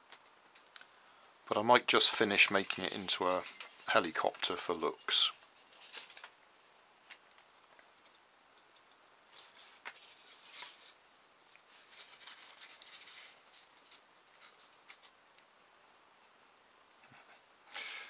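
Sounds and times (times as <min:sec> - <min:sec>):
scratchy rustling of polystyrene: 0:01.7 - 0:06.7, 0:09.3 - 0:15.1.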